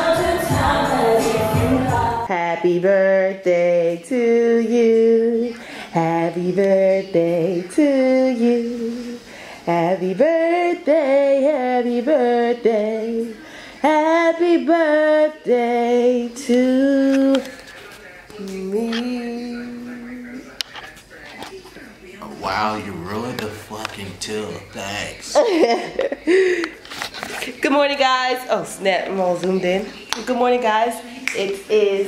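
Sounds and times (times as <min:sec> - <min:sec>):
music with backing: 0:00.0 - 0:02.3
woman singing unaccompanied: 0:00.0 - 0:20.5.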